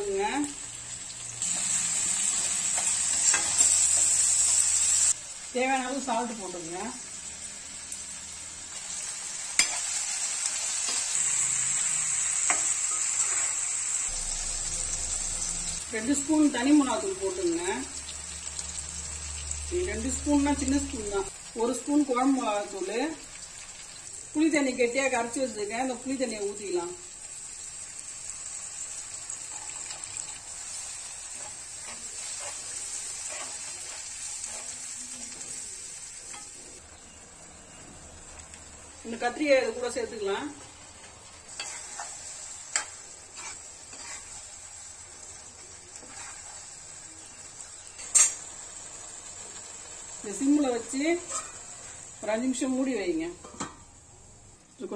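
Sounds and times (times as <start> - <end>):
vegetables sizzling in hot oil: 0.0 - 54.9
spatula stirring and tapping pan: 41.5 - 44.4.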